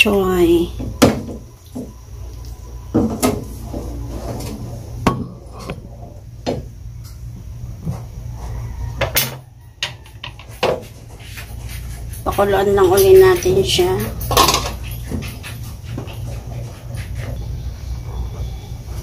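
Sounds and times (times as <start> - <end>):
low hum: 0.0 - 9.0.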